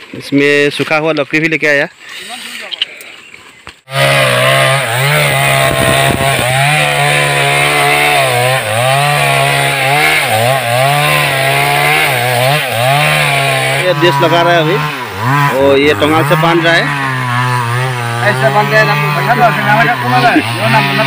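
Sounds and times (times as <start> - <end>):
chainsaw cutting tree trunk: 3.8 - 21.0.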